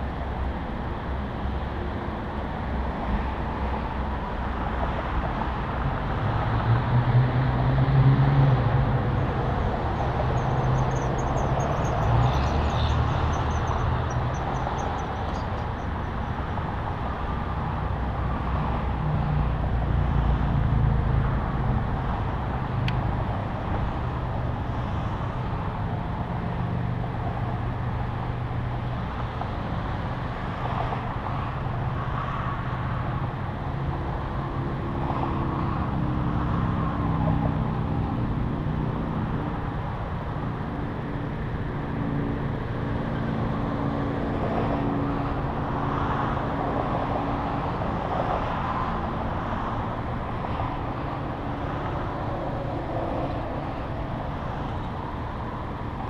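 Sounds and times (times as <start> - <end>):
low engine and road drone: 0.0 - 56.0
wind and tyre rush: 0.0 - 56.0.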